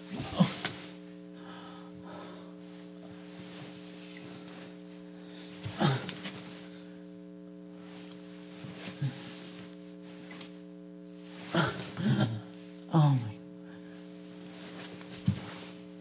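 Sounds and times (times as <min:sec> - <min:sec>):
air conditioner humming: 0:00.0 - 0:16.0
breathy vocal sound: 0:11.4 - 0:12.6.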